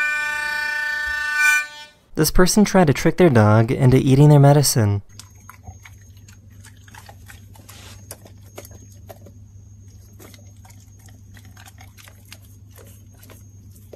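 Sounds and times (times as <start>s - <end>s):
low steady hum: 2.1s - 13.9s
dog sniffing: 5.4s - 13.9s.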